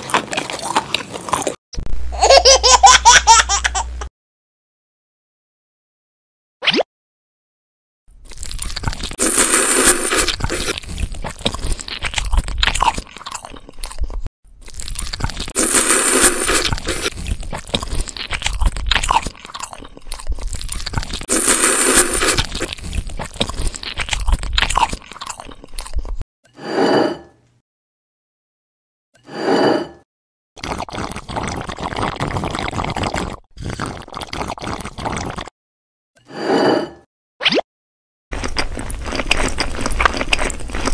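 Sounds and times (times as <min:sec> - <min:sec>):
wet chewing and slurping: 0:00.0 - 0:01.6, 0:08.2 - 0:26.2, 0:30.6 - 0:35.5, 0:38.3 - 0:40.9.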